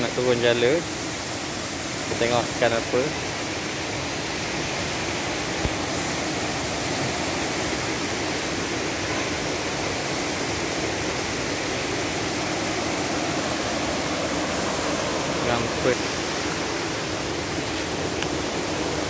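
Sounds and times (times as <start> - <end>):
river rushing over rocks: 0.0 - 19.0.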